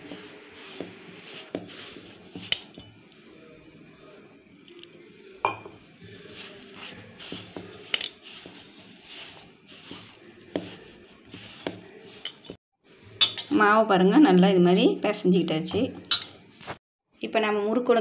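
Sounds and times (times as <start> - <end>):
steel bowl clinking: 0.0 - 3.2, 4.5 - 12.6
hands kneading dough: 0.0 - 3.6, 6.0 - 12.6.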